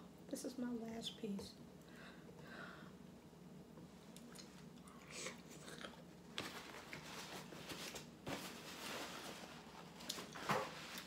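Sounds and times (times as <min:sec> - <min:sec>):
paper napkin rustling: 0:06.4 - 0:11.0.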